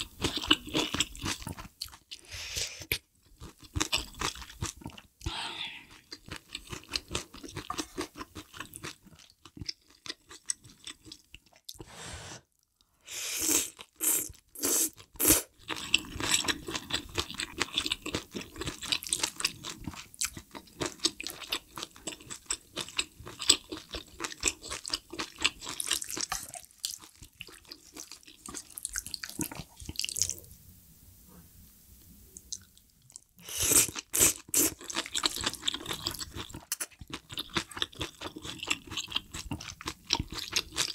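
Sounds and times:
loud slurps of broth and noodles: 11.8s - 12.5s, 13.1s - 15.5s, 33.4s - 34.8s.

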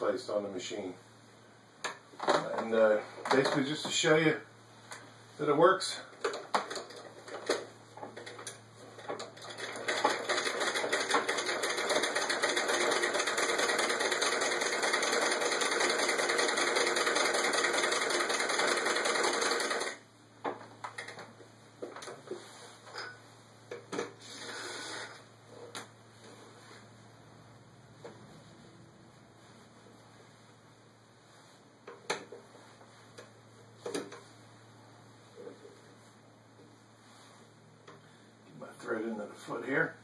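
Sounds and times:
sewing machine clatter: 6.2s - 20.0s.

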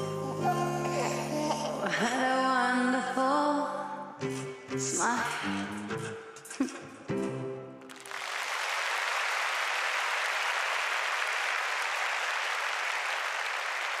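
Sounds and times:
audience applause: 7.9s - 14.0s.

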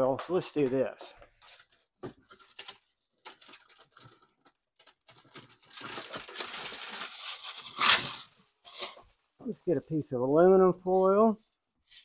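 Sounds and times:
aluminum foil crinkling: 1.5s - 9.4s, 11.3s - 12.0s.

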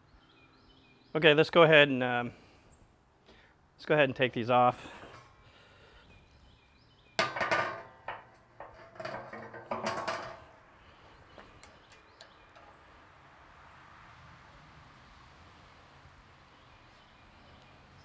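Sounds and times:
metal clanks and rattles: 7.2s - 10.7s, 11.4s - 12.9s.

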